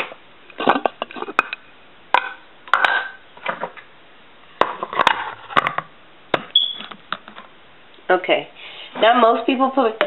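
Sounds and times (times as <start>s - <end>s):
high squeak: 6.6s - 6.9s.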